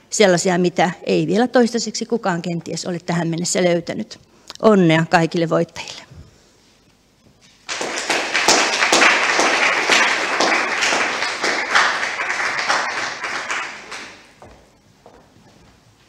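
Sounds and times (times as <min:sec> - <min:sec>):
audience applauding: 0:07.7 - 0:14.4.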